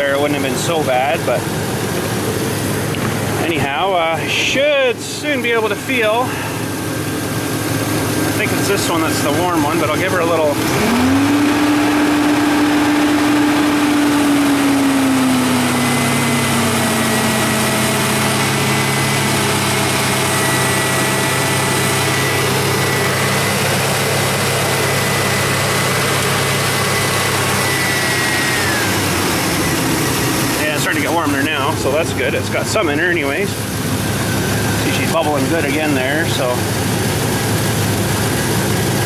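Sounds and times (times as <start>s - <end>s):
truck engine running above idle: 0.0s - 39.0s
thin high whine: 14.1s - 32.2s.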